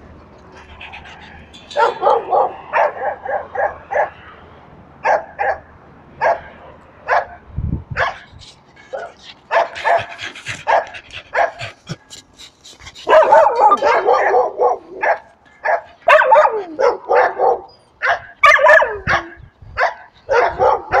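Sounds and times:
dogs barking and yipping: 0.1s - 4.4s, 5.0s - 7.4s, 8.0s - 21.0s.

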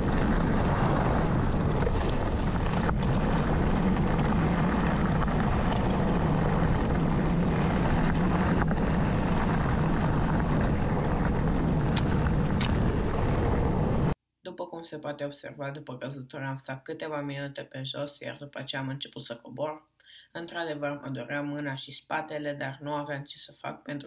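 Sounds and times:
wind buffeting microphone: 0.0s - 14.2s.

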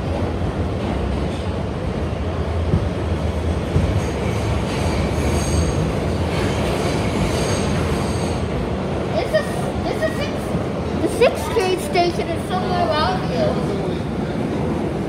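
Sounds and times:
train rumbling on track: 0.0s - 15.0s
high-pitched train squeal: 4.8s - 8.5s.

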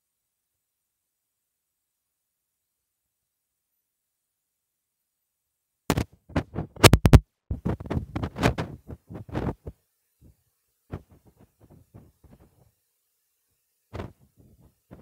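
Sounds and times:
microphone handling thumps and scrapes: 5.9s - 12.7s, 13.9s - 15.0s.

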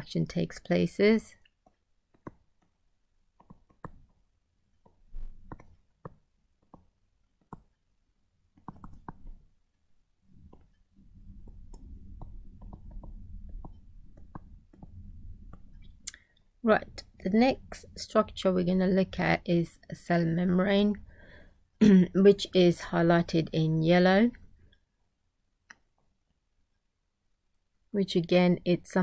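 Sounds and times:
stylus clicks and taps: 1.4s - 2.8s, 3.4s - 4.2s, 4.8s - 7.8s, 8.5s - 9.5s, 11.4s - 16.2s
low rumble: 10.4s - 19.4s.

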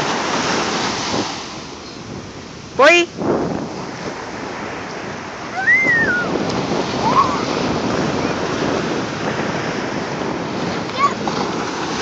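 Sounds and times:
small surf breaking on beach: 0.0s - 1.8s, 2.8s - 12.0s
child calling out: 5.5s - 6.3s, 10.8s - 11.2s.

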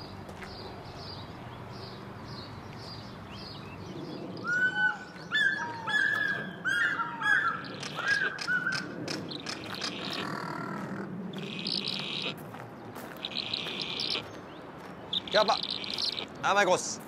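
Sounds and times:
loud short bird calls: 4.4s - 12.4s, 13.2s - 14.4s, 15.1s - 16.5s
faint high bird chirps: 13.2s - 14.3s, 15.1s - 16.4s.

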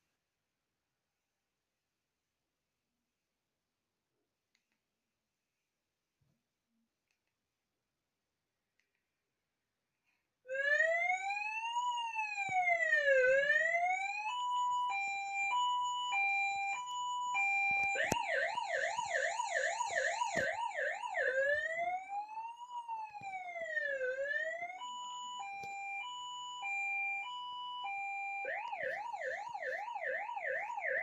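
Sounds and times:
electronic siren: 10.5s - 31.0s.

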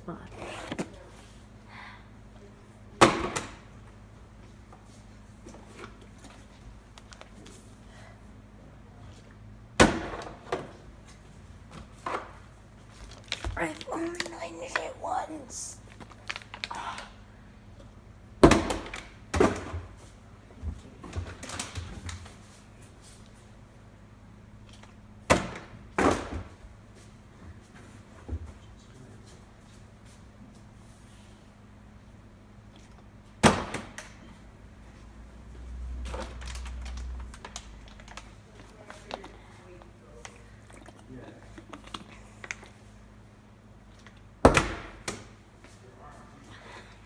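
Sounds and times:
plastic bottle landing smack: 3.0s - 3.6s, 9.8s - 10.7s, 18.4s - 19.7s, 33.4s - 34.1s, 44.4s - 45.3s.

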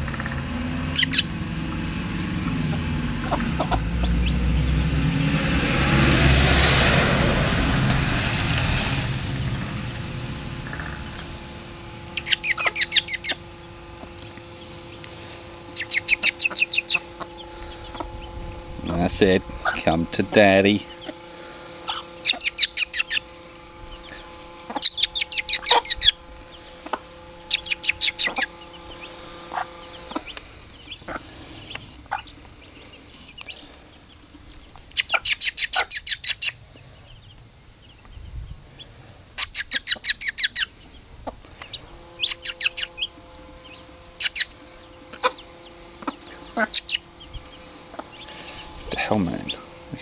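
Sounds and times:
hen clucking: 0.0s - 4.5s, 12.0s - 36.6s, 39.4s - 50.0s
chicks peeping: 0.0s - 5.8s, 6.5s - 50.0s.

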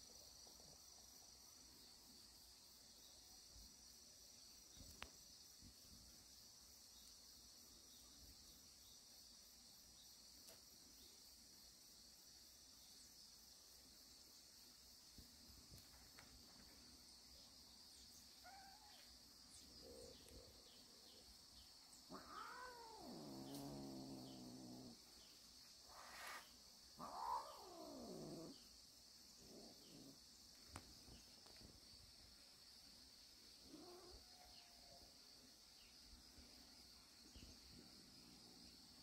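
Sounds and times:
cats yowling and growling: 18.4s - 19.1s, 22.0s - 25.0s, 27.0s - 28.7s, 33.6s - 34.8s
faint cat meows: 18.4s - 19.1s, 22.1s - 25.0s, 27.0s - 28.5s, 33.6s - 34.9s.

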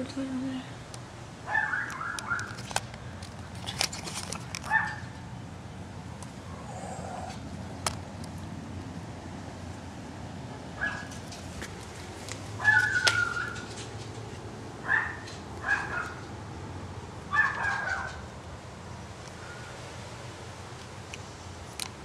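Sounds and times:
small dog barking and yelping: 1.4s - 2.6s, 4.7s - 5.2s, 10.8s - 11.2s, 12.6s - 13.8s, 14.8s - 16.3s, 17.3s - 18.3s.

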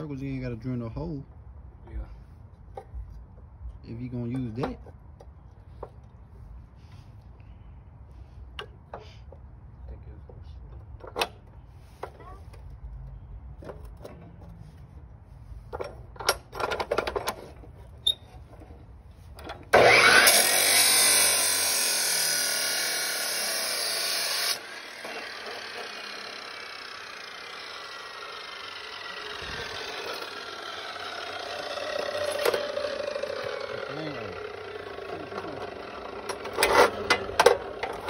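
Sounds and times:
power tool cutting: 19.6s - 38.0s.

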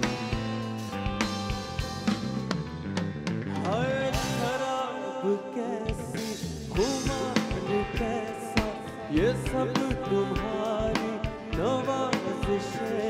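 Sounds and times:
drum kit: 0.0s - 4.9s, 5.9s - 13.0s
electric guitar: 0.0s - 13.0s
man singing: 3.5s - 13.0s.

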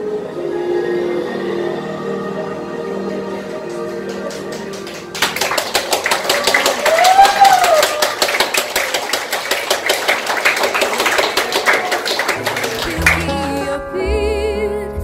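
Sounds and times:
accompanying music: 0.0s - 7.2s, 9.3s - 15.0s
audience applause: 3.4s - 13.7s.

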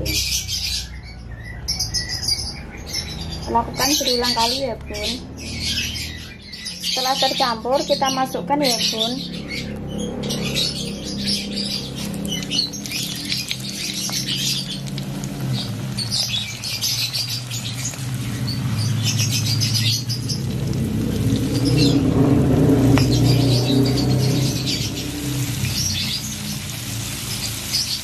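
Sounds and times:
shrimp deep-frying in oil: 11.8s - 28.0s.

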